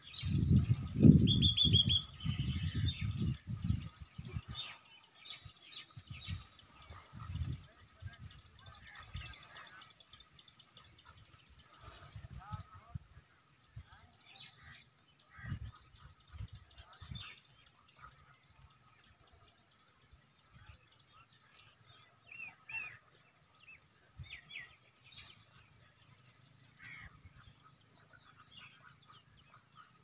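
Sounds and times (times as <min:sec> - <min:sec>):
small birds chirping: 0:00.0 - 0:12.6.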